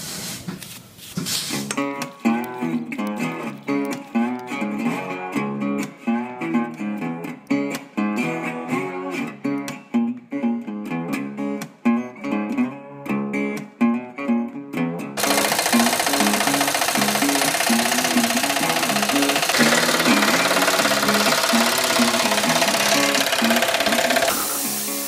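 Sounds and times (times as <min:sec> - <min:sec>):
guitar playing plucked notes: 0:01.8 - 0:16.3.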